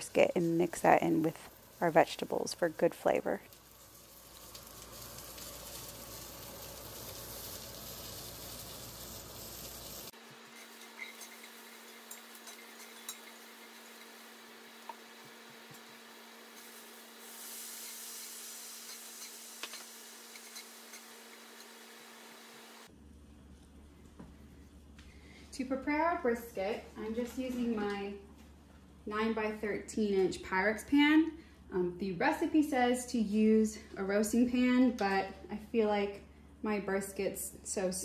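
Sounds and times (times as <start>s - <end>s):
vegetables sizzling in a skillet: 0.0s - 22.9s
spatula scraping a pan: 8.6s - 14.2s.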